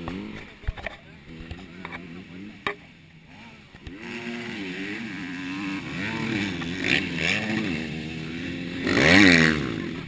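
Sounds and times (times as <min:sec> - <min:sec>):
dirt bike engines revving: 0:00.0 - 0:10.0
dirt bike passing close by: 0:03.3 - 0:10.0.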